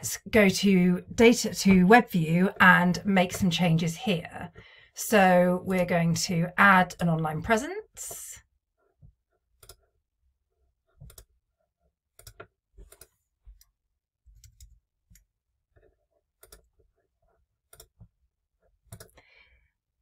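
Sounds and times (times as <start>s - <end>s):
computer mouse clicks: 9.6s - 9.8s, 11.0s - 11.3s, 12.2s - 13.7s, 14.3s - 16.7s, 17.7s - 18.1s, 18.9s - 19.2s.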